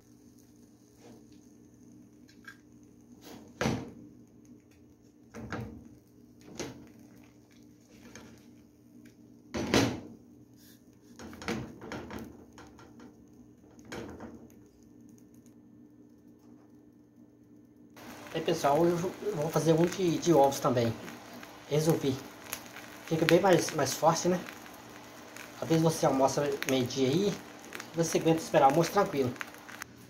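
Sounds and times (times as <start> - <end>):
faint steady hum: 12.2 - 30.0.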